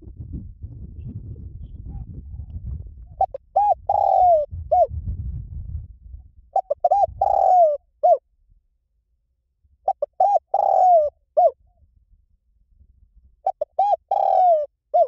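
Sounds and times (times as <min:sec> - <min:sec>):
dove cooing: 0:03.1 - 0:05.0, 0:06.6 - 0:08.2, 0:09.9 - 0:11.6, 0:13.4 - 0:15.0.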